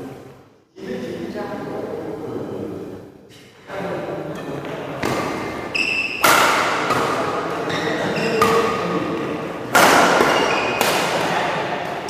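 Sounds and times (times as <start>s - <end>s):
rackets hitting shuttlecock: 4.6s - 12.0s
shoes squeaking on court: 5.1s - 6.3s, 6.9s - 8.9s, 10.2s - 10.8s.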